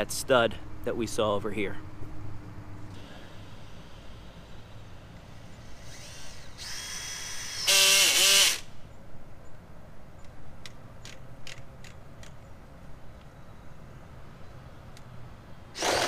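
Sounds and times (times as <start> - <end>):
cordless drill whining: 5.7 - 8.7, 15.8 - 16.0.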